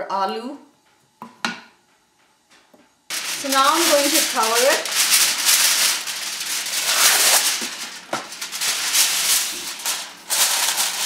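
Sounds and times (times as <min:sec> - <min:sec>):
aluminium foil pulled and torn: 0:03.1 - 0:11.0
foil crinkling: 0:03.1 - 0:11.0.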